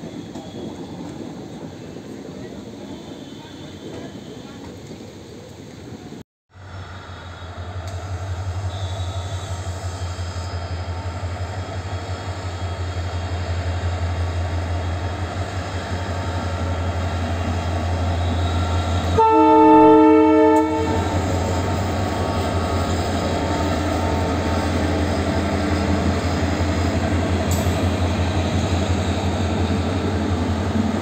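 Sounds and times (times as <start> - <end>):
diesel locomotive engine drone: 0.0 - 31.0
locomotive horn blast: 7.2 - 10.6, 18.0 - 25.2.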